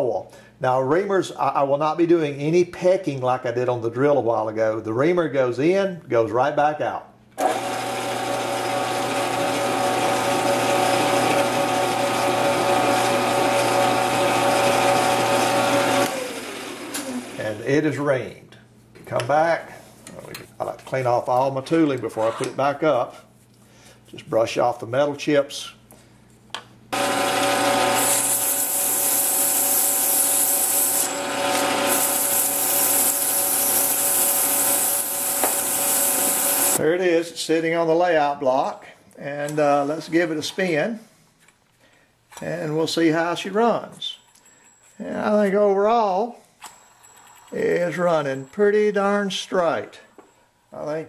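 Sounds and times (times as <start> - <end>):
lathe motor running: 7.4 - 17.4, 27.0 - 36.8.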